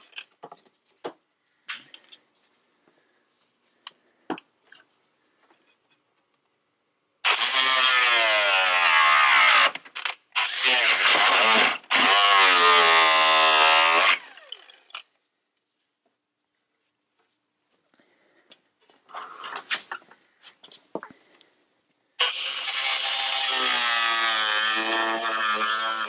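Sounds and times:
power tool cutting plastic: 0:07.2 - 0:15.0, 0:22.2 - 0:26.0.

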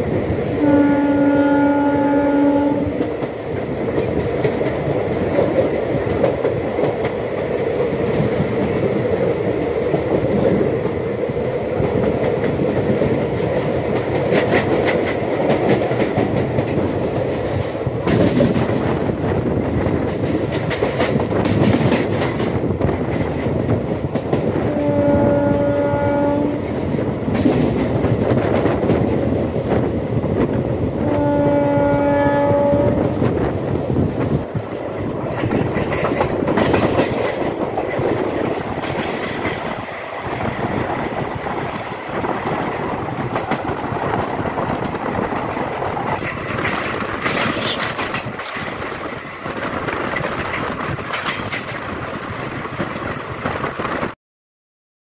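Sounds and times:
train rumbling and rattling: 0:00.0 - 0:54.2
train horn blast: 0:00.6 - 0:03.0, 0:24.6 - 0:26.9, 0:31.0 - 0:33.2.

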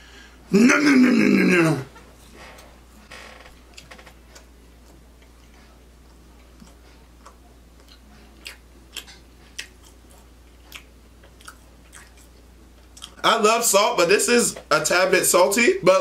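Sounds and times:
person chewing with wet mouth clicks: 0:03.7 - 0:13.2.

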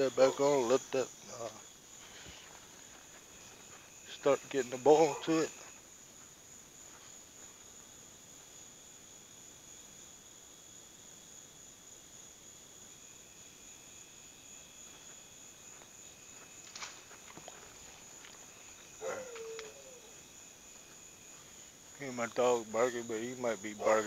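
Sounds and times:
crickets chirring: 0:00.0 - 0:24.0
dog barking: 0:19.0 - 0:20.2, 0:23.8 - 0:24.0.

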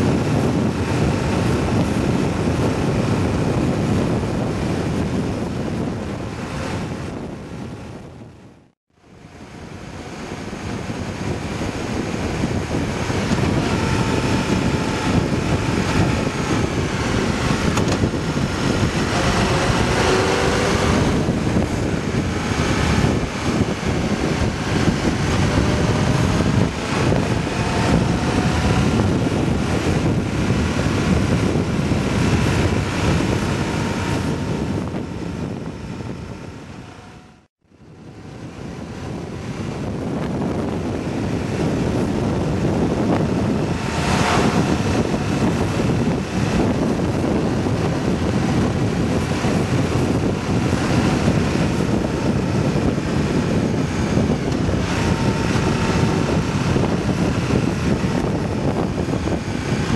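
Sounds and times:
motorcycle engine running: 0:00.0 - 0:59.9
wind rushing over microphone: 0:00.0 - 0:59.9.

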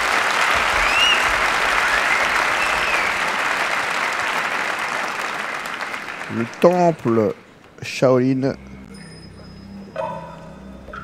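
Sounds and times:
crowd applauding: 0:00.0 - 0:07.6
rising whistles: 0:00.1 - 0:03.6, 0:08.6 - 0:11.0.

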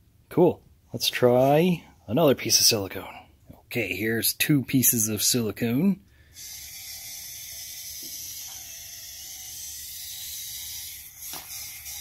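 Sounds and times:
gearmotor whining: 0:06.4 - 0:12.0.

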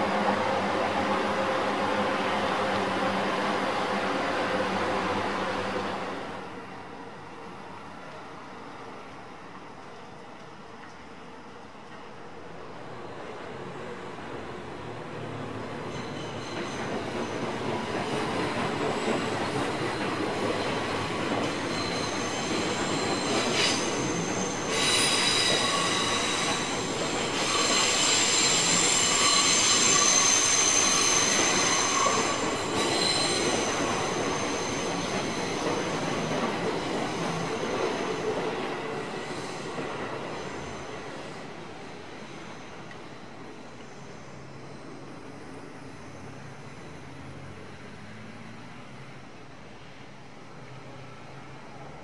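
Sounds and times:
train passing: 0:00.0 - 0:52.0
wheels squealing against rails: 0:15.5 - 0:41.5.

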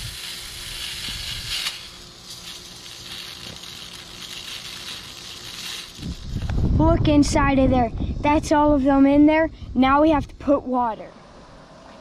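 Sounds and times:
gel beads pouring into plastic funnel: 0:00.0 - 0:06.1.

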